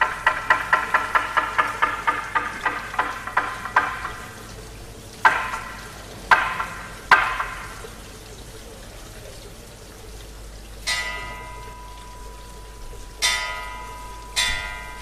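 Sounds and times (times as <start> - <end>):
struck percussion ringing: 0.0 - 4.4.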